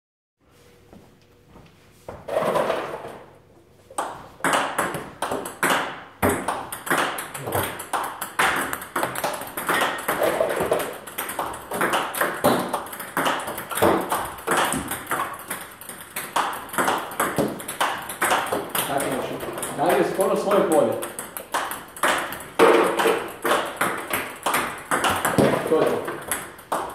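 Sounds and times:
table tennis ball hits: 4.0s - 26.9s.

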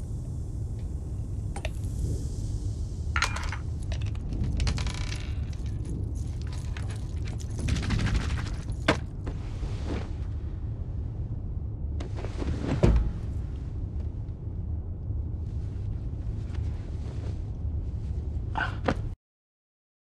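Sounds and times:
train carriage rumble: 0.0s - 19.1s.

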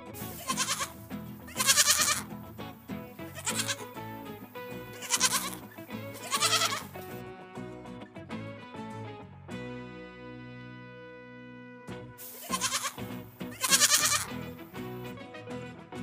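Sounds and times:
background music: 0.0s - 16.0s
goats bleating: 0.2s - 7.2s, 12.2s - 14.8s.

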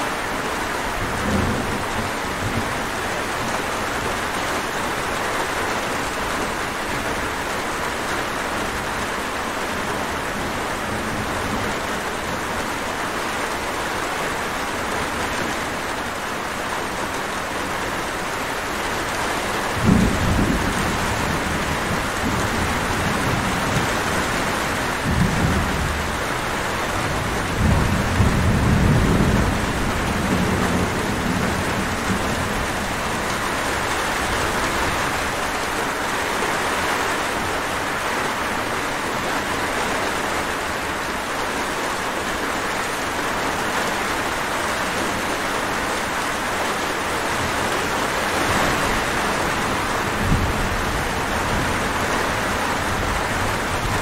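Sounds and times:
steady rain: 0.0s - 54.0s
thunder rumbling: 19.4s - 35.8s, 47.4s - 54.0s.

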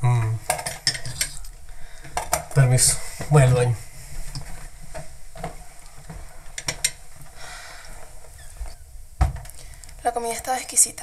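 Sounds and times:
faint hiss: 0.0s - 11.0s.

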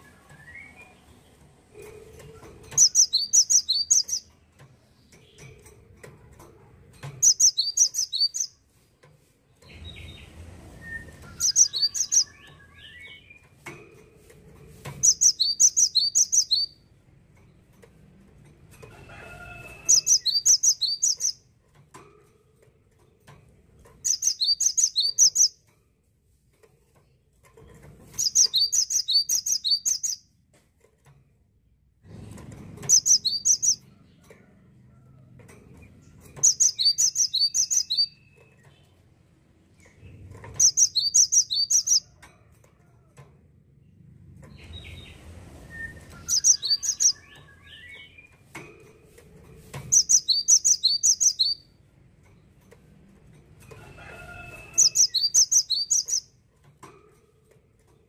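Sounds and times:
bird singing high rapid notes: 2.8s - 4.3s, 7.2s - 8.6s, 11.3s - 13.4s, 15.0s - 16.8s, 19.9s - 21.4s, 24.0s - 25.6s, 28.2s - 30.2s, 32.9s - 33.8s, 36.4s - 38.3s, 40.6s - 42.0s, 46.0s - 48.2s, 49.9s - 51.6s, 54.8s - 56.3s
fainter lower bird calls: 2.8s - 4.3s, 7.2s - 8.6s, 11.3s - 13.3s, 15.0s - 16.8s, 19.8s - 21.4s, 24.1s - 25.6s, 28.2s - 30.2s, 36.4s - 38.3s, 40.6s - 42.0s, 49.9s - 51.6s, 54.7s - 56.3s.

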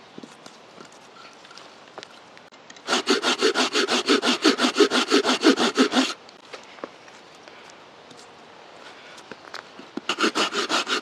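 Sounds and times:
hand saw cutting log: 2.8s - 6.2s, 10.0s - 11.0s.

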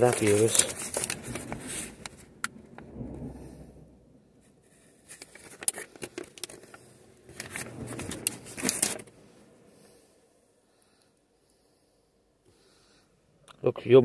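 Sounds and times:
packaging rustling and crinkling: 0.0s - 2.4s, 4.7s - 9.2s.

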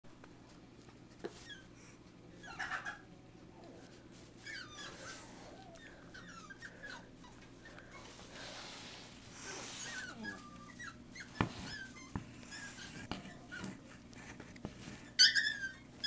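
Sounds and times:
puppies squeaking and whimpering: 1.2s - 16.0s.

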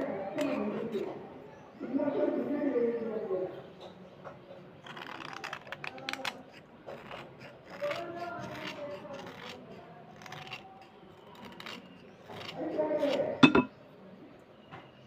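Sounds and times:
knife scraping slate pencil: 4.8s - 13.3s.

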